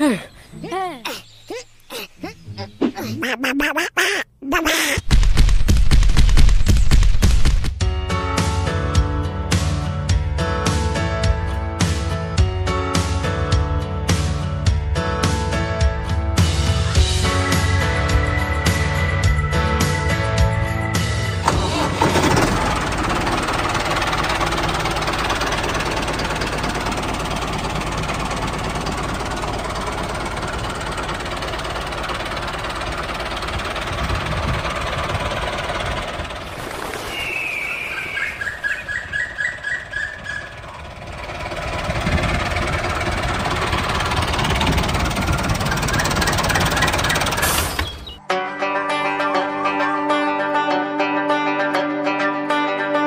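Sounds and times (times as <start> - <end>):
engine running: 16.6 - 48.2
falling high chirp: 37.0 - 40.6.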